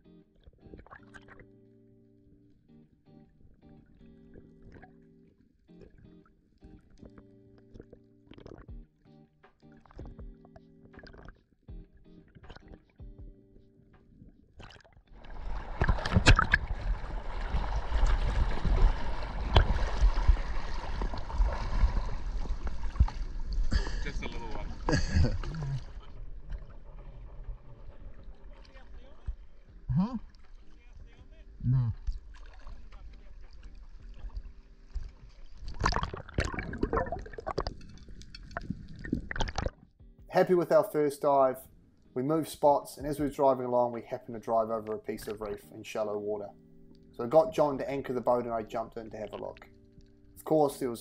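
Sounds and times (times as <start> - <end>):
sharp splashes: 14.6 - 29.6
sea water sloshing and splashing: 14.6 - 39.9.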